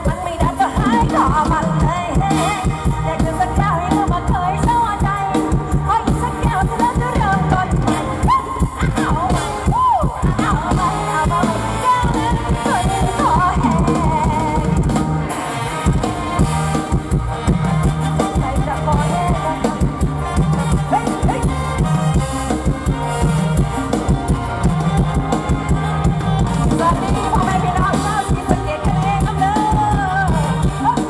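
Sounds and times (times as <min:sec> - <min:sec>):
woman singing through pa: 0:00.0 - 0:14.9, 0:18.0 - 0:21.8, 0:26.4 - 0:31.0
steady drum beat: 0:00.0 - 0:31.0.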